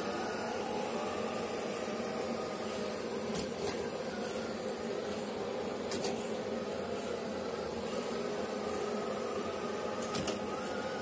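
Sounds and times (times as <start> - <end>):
robot vacuum cleaner humming: 0.0 - 11.0.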